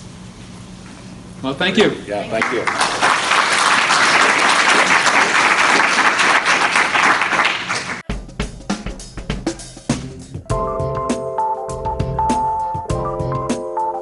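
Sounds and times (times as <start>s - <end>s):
audience applauding: 2.3s - 8.0s
drum-led music: 8.0s - 14.0s.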